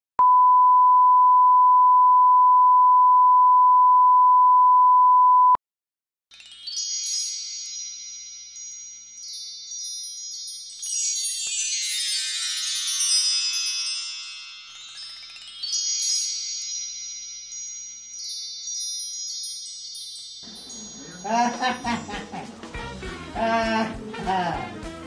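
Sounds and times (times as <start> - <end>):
tinkling chime music: 6.3 - 22.9.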